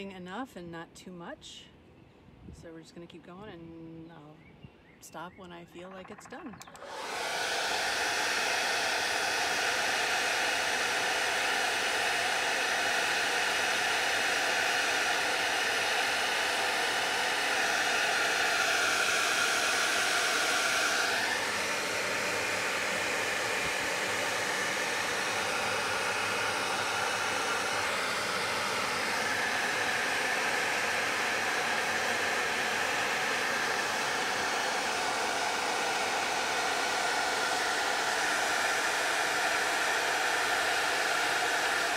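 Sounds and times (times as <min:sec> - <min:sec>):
hair dryer blowing: 0:06.6 - 0:41.9.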